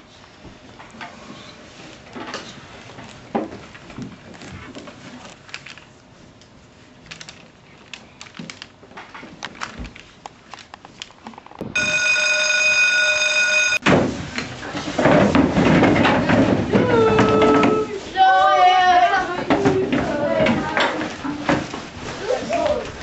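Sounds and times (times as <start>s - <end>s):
rustle of pages and pencils: 0.0s - 11.6s, 14.1s - 23.0s
school bell buzzer: 11.8s - 13.8s.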